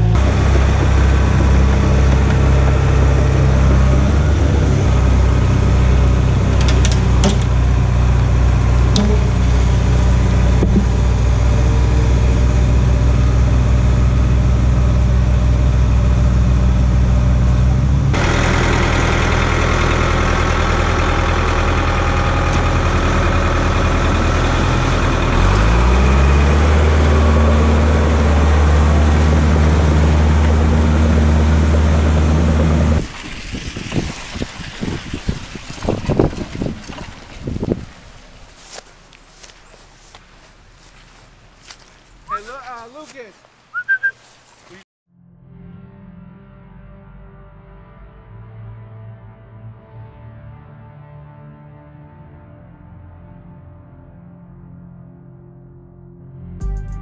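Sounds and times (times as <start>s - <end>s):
engine revving: 0.0s - 33.1s
diesel engine running: 0.0s - 43.1s.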